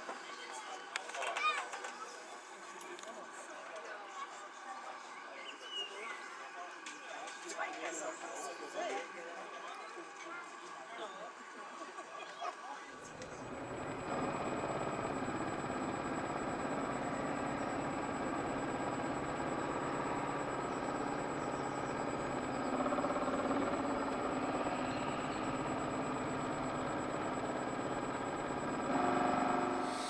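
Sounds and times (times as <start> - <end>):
motor hum with high whine: 12.9 - 30.0.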